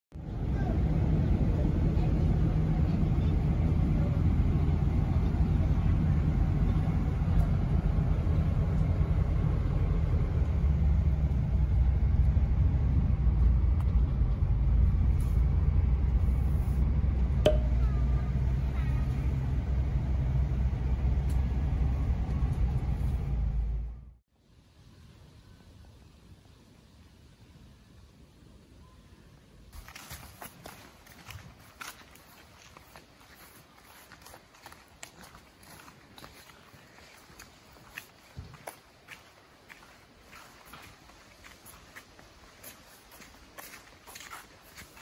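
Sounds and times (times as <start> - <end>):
vehicle road and engine rumble: 0.1 - 24.3, 29.4 - 45.0.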